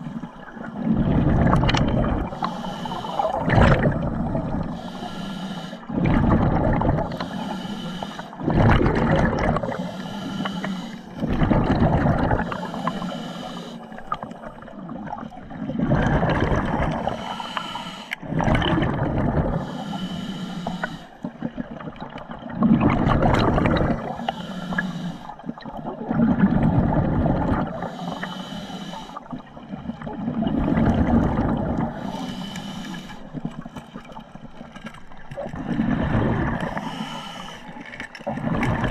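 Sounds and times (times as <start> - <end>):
exhaled bubbles rushing: 0.0 - 4.8, 5.8 - 7.4, 8.4 - 10.0, 11.0 - 13.0, 13.9 - 17.5, 18.2 - 19.8, 21.2 - 24.3, 25.4 - 27.9, 29.2 - 32.1, 33.3 - 38.9
regulator hissing inhale: 2.3 - 3.4, 4.5 - 5.9, 7.1 - 8.4, 9.6 - 11.3, 12.4 - 14.4, 17.0 - 18.2, 19.5 - 21.3, 24.0 - 25.5, 27.8 - 30.0, 31.9 - 33.5, 36.6 - 37.9.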